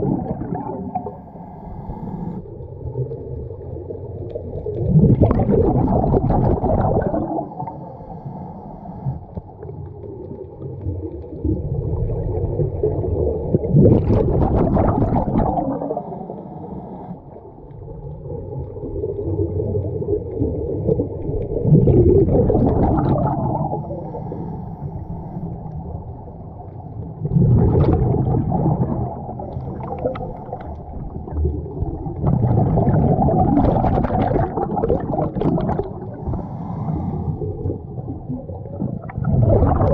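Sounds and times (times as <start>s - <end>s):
scuba regulator exhaled bubbles: 0.0s - 8.3s, 8.9s - 26.0s, 26.9s - 39.9s
low steady underwater rumble: 0.0s - 39.9s.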